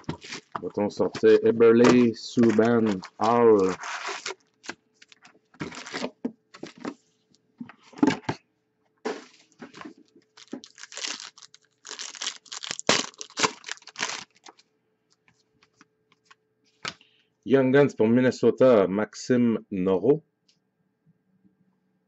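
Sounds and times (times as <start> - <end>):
card pack wrapper tearing and crinkling: 0.0 - 6.8, 10.3 - 14.6
cards being handled: 0.0 - 7.0.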